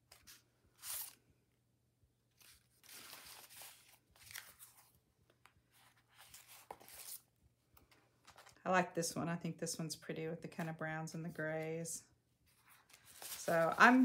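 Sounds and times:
paper sheets rustling and sliding: 12.5s - 14.0s.

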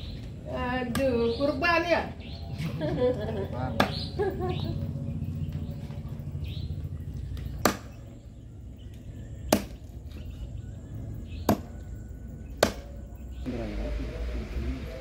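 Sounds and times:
knife chopping meat on wood: 12.6s - 12.9s.

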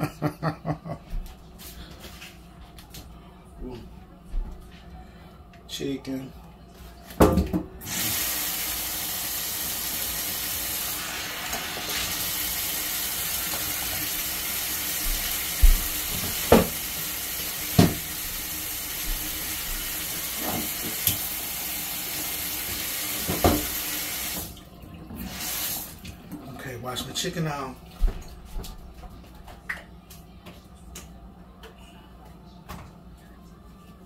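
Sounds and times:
tap running into sink: 15.0s - 16.9s, 17.7s - 18.1s, 20.4s - 21.3s, 22.6s - 24.5s.

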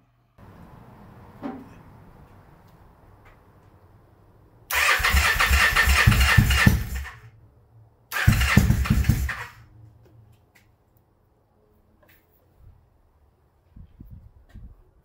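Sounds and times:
motorcycle engine cranking: 4.7s - 7.2s, 8.1s - 9.6s.

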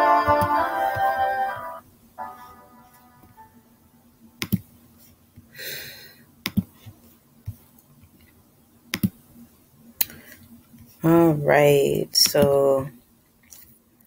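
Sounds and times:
closing music: 0.0s - 4.0s
computer mouse clicks: 4.4s - 4.6s, 6.5s - 6.7s, 8.9s - 9.2s.

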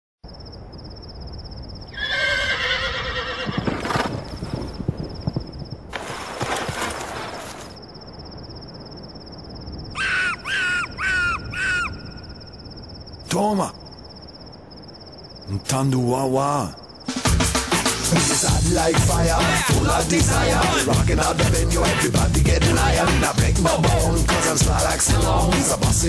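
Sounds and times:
pulsing insect trill: 0.3s - 19.4s
horse whinnying: 1.9s - 4.4s
hooves clattering: 2.9s - 7.7s
short calls: 10.0s - 14.0s.

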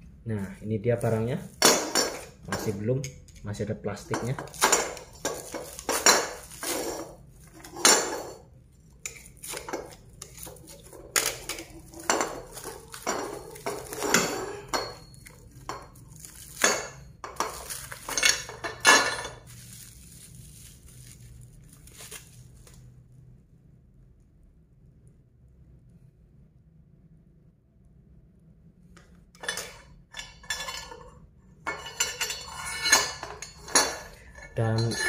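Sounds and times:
metal pipe clinking and scraping: 1.0s - 19.8s, 29.4s - 35.0s
plastic wrap being cut and peeled: 15.2s - 16.7s, 19.5s - 22.9s.

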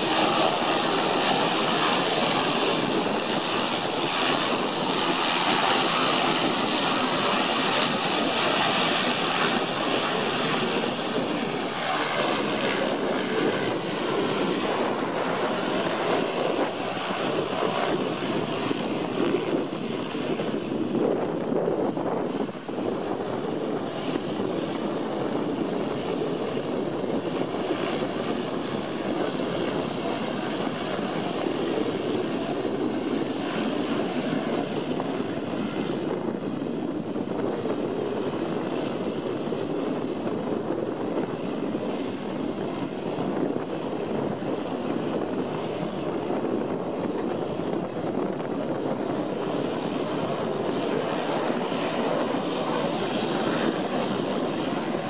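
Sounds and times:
propeller drone: 0.0s - 55.0s.

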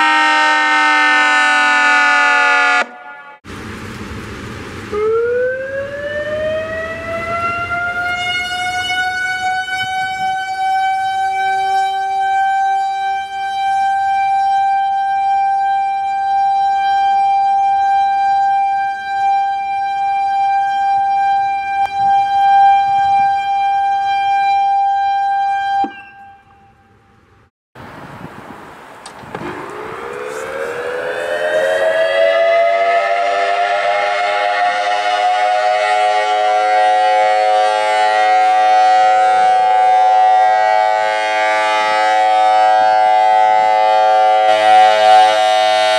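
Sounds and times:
multi-tone siren winding up: 0.0s - 3.2s, 29.6s - 45.9s
warning siren winding up: 0.0s - 3.3s, 4.9s - 27.0s, 29.4s - 45.9s.

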